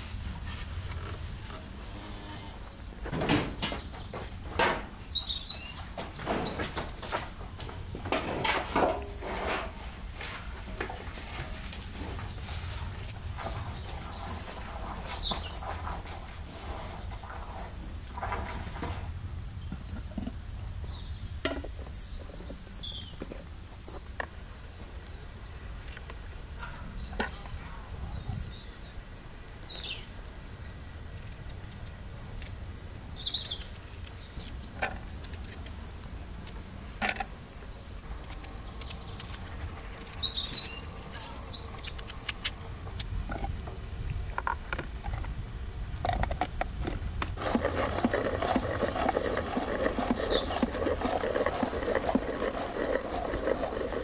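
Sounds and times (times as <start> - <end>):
birds calling: 2.2 - 7.5, 13.4 - 16.0, 37.0 - 42.7, 46.2 - 54.0.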